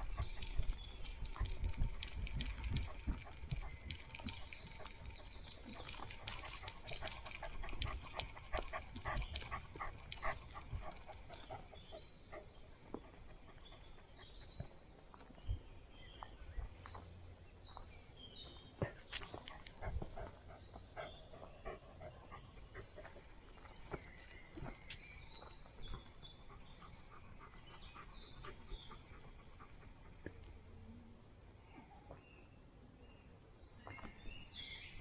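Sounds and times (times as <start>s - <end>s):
bird chirps: 31.7s - 35.0s.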